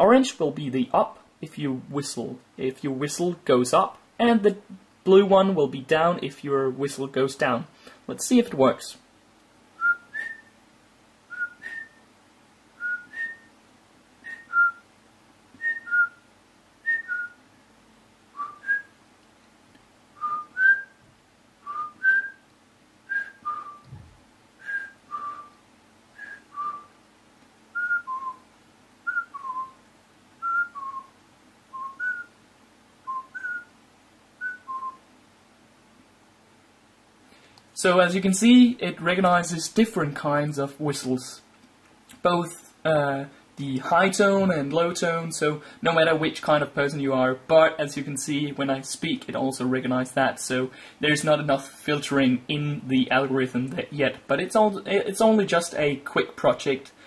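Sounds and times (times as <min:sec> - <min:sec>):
man whistling two-note phrases: 0:09.8 - 0:10.5, 0:11.3 - 0:12.0, 0:24.6 - 0:25.6.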